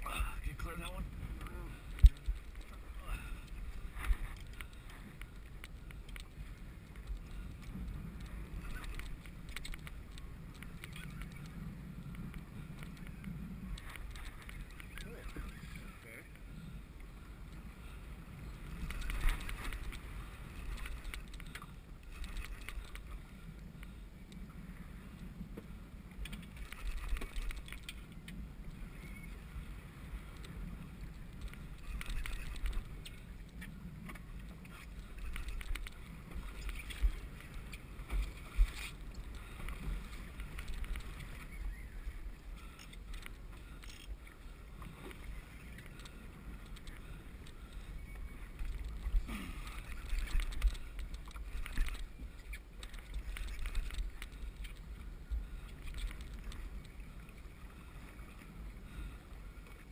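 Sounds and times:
wind rumble on microphone: 0.0 - 59.9.

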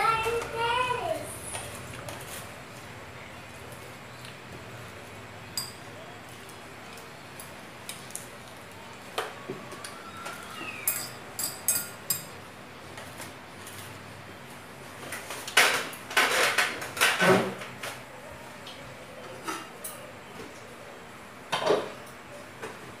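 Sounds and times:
chopsticks clinking on glass bowl: 10.9 - 12.4.

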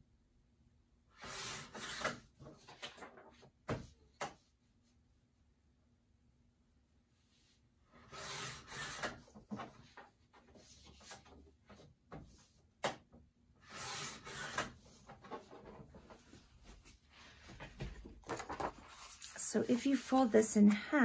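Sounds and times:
paper rustling and scraping: 8.0 - 12.5, 13.6 - 20.3.

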